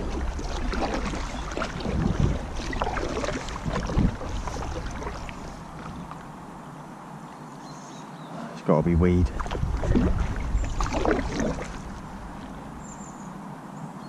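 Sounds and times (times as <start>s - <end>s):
wind rumble on microphone: 0.0s - 6.3s, 8.9s - 13.6s
paddle strokes splashing in water: 0.0s - 6.5s, 9.2s - 13.4s.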